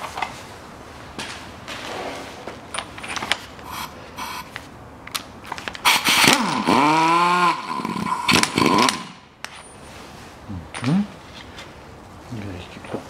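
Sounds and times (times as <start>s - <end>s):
pneumatic impact wrench running: 1.9s - 4.6s, 5.8s - 9.3s.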